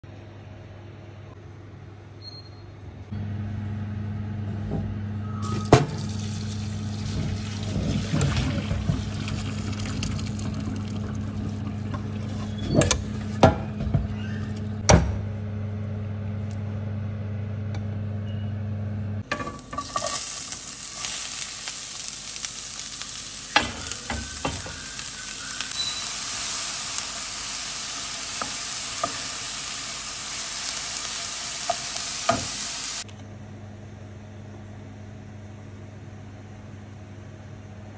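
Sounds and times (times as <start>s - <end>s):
onions sizzling in frying pan: 19.3s - 33.0s.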